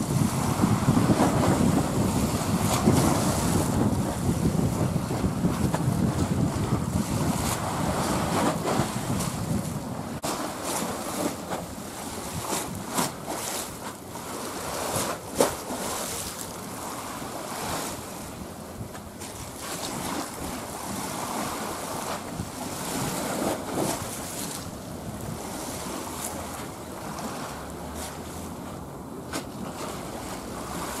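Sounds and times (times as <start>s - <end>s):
wind buffeting microphone: 0.0s - 14.0s, 14.6s - 27.9s
sea waves: 0.0s - 31.0s.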